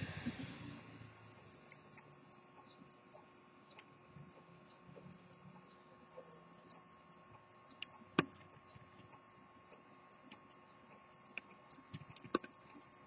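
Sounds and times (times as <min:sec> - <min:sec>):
pocket watch ticking rapidly: 0:01.5 - 0:13.0
sharp clicks and knocks: 0:06.7 - 0:13.0.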